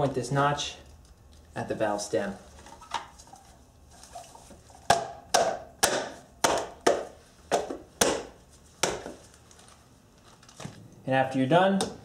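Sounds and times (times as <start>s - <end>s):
palm slapping hubcap: 2.6s - 9.4s.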